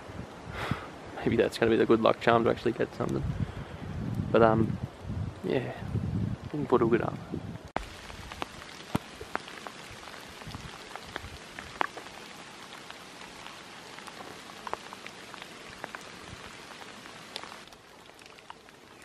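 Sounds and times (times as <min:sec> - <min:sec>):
light rain hiss: 0:00.0 - 0:19.0
raindrops ticking: 0:07.8 - 0:19.0.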